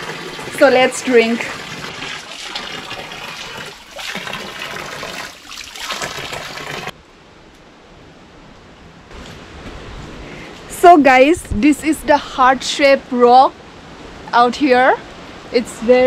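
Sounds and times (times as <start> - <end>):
water splashing on hands and stone: 0.0 - 6.9.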